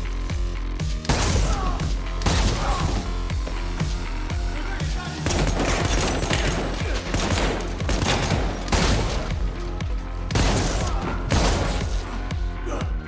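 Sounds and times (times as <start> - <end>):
film soundtrack music: 0.0 - 13.0
gunshots and shotgun blasts: 1.0 - 3.1, 5.2 - 9.6, 10.2 - 12.1.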